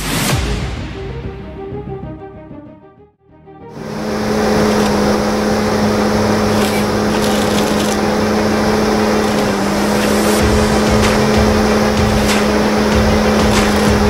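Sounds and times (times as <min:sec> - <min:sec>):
diesel engine running: 0:03.8 - 0:14.0
short clicks: 0:06.4 - 0:08.1.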